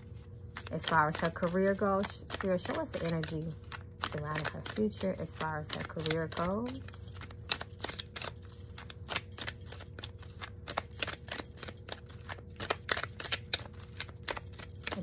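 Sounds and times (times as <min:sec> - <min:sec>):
cards being shuffled: 0:00.0 - 0:15.0.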